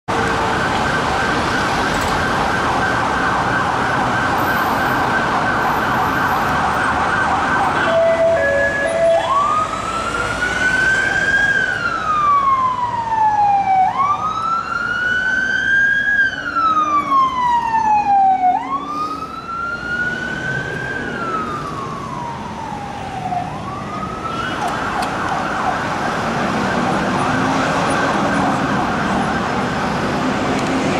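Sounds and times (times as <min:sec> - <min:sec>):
police siren yelp and wail: 0:00.1 - 0:30.9
road traffic: 0:00.1 - 0:30.9.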